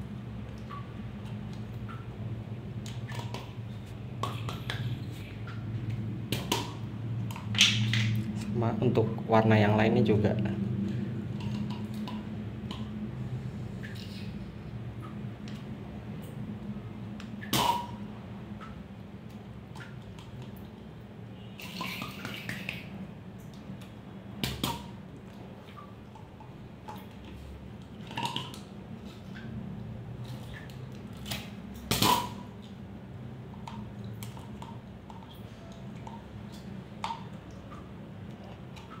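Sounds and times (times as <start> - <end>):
low steady hum: 0.0 - 39.0
small water splashes: 2.8 - 8.5, 17.3 - 39.0.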